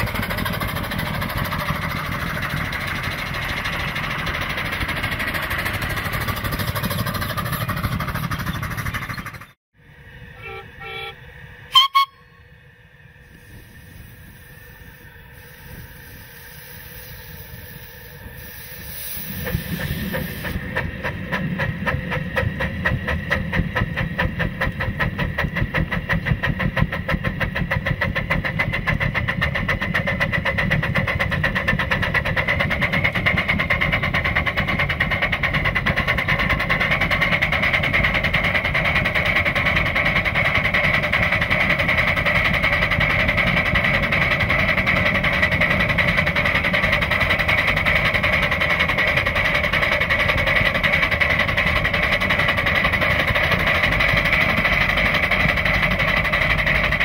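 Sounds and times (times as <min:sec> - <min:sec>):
steam locomotive exhaust beats: 0:00.0 - 0:57.0
steady high tone: 0:10.1 - 0:12.6.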